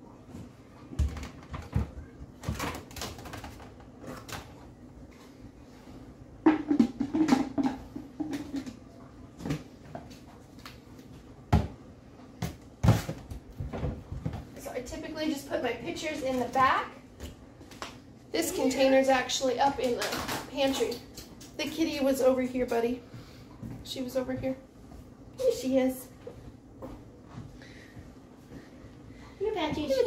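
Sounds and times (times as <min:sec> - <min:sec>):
plastic containers clattering: 0:01.0 - 0:04.6, 0:06.4 - 0:10.2, 0:19.7 - 0:21.0.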